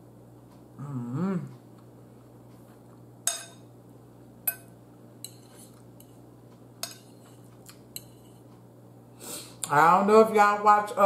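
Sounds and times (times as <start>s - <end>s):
metal fork clinking against bowl: 3.2s - 3.7s, 4.4s - 6.2s, 6.8s - 8.4s.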